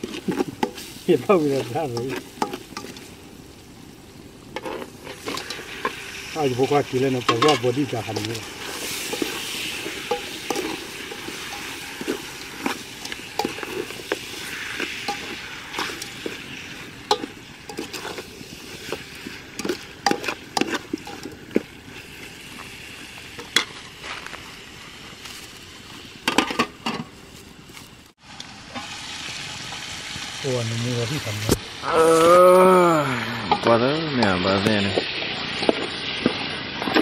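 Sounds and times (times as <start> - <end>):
meat sizzling in oil: 0.0 - 26.5, 28.2 - 37.0
spatula scraping and knocking pot: 6.6 - 16.4, 17.0 - 21.7.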